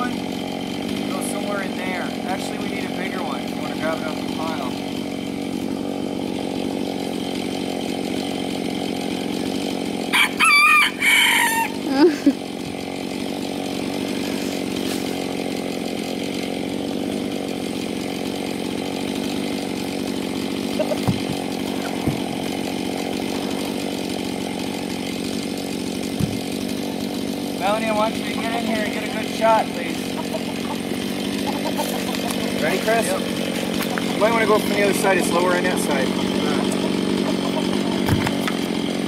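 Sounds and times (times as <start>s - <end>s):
chainsaw idling: 0.0s - 39.0s
rooster crowing: 10.1s - 11.9s.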